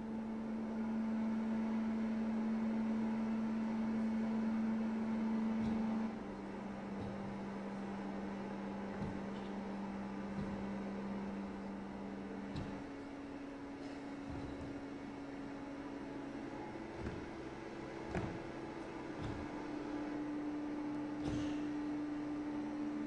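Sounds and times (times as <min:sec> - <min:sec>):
faint knocks: 0:05.6 - 0:22.5.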